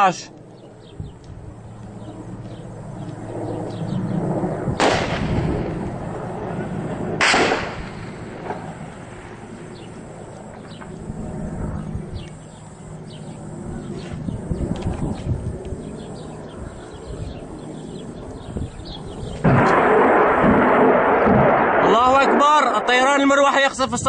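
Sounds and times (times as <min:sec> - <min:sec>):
helicopter rotor drone: 0:00.0 - 0:21.4, 0:22.2 - 0:24.0
loud blasts: 0:04.4 - 0:15.5, 0:18.1 - 0:24.0.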